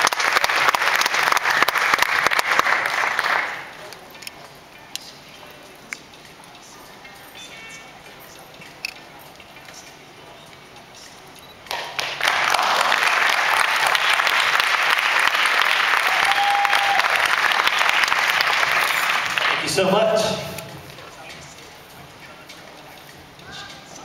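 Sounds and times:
audience applause: 0:00.0 - 0:03.8, 0:11.7 - 0:19.9
quiet crowd murmur: 0:00.0 - 0:24.0.

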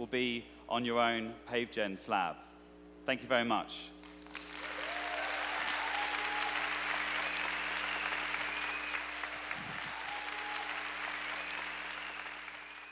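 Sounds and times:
audience applauding: 0:04.0 - 0:12.9.

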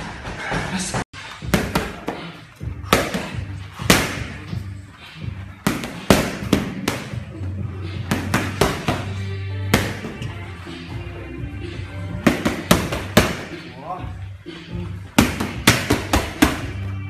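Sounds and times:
boxing gloves smacking mitts: 0:01.4 - 0:04.6, 0:05.6 - 0:07.3, 0:08.0 - 0:10.3, 0:12.2 - 0:13.6, 0:15.1 - 0:16.8.

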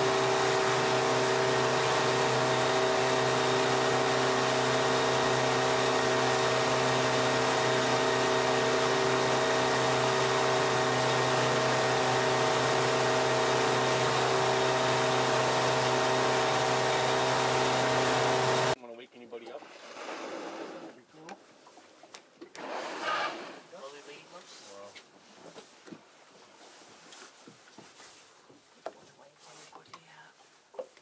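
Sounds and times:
boat engine droning: 0:00.0 - 0:18.8
rushing wake: 0:00.0 - 0:18.8.

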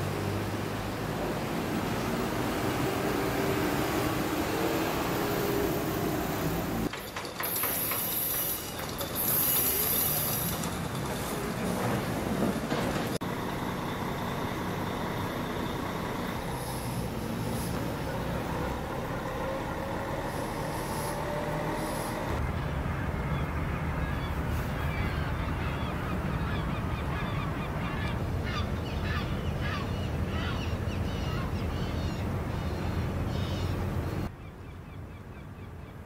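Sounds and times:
bus engine driving by: 0:00.0 - 0:34.3
birds calling: 0:13.2 - 0:36.0
short air hisses: 0:20.4 - 0:22.3.

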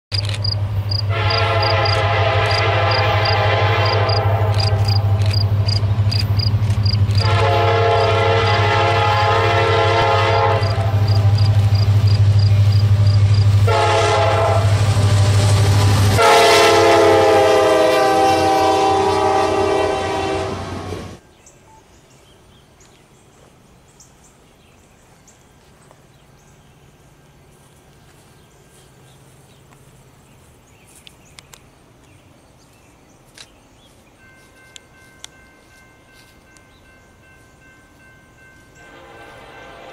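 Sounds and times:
locomotive engine running: 0:00.1 - 0:17.7
faint outdoor ambience: 0:00.1 - 0:39.9
locomotive air horn blasts: 0:01.0 - 0:05.2, 0:07.1 - 0:12.0, 0:12.6 - 0:21.2, 0:38.8 - 0:39.9.

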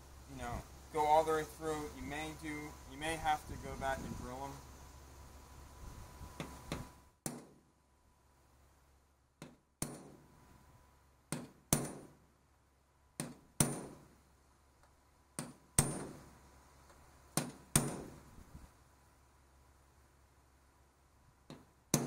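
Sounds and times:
hammer striking metal punch: 0:11.3 - 0:12.2, 0:13.2 - 0:14.0, 0:15.4 - 0:16.2.

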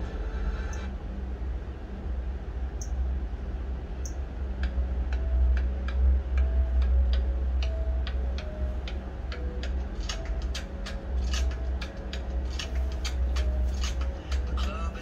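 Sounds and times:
steady low hum: 0:00.0 - 0:15.0
sharp ticking clicks: 0:04.0 - 0:15.0.

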